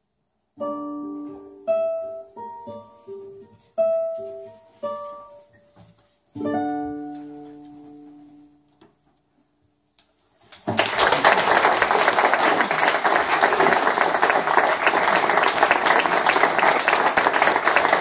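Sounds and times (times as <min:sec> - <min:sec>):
audience applauding: 0:10.7 - 0:18.0.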